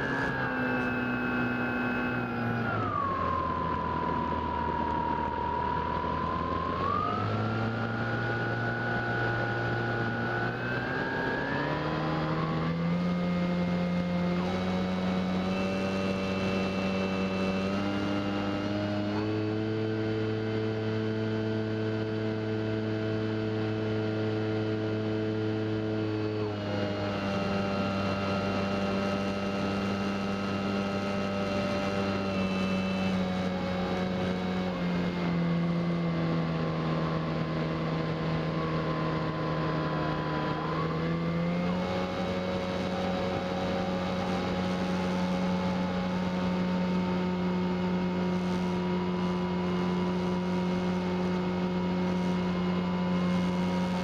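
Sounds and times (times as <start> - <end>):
electric motor propeller whining: 0.0 - 21.8.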